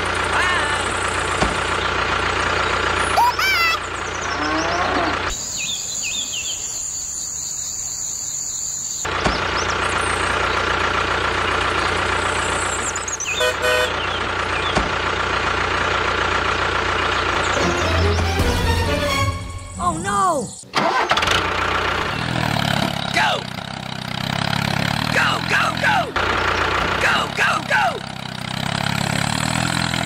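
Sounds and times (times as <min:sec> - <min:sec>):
tractor engine running: 0:00.0 - 0:30.0
horn toot: 0:13.3 - 0:14.0.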